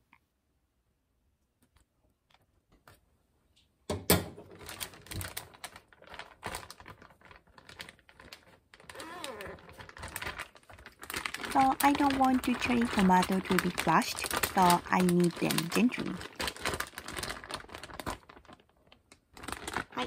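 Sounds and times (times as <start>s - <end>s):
plastic bag crinkling: 4.4s - 20.0s.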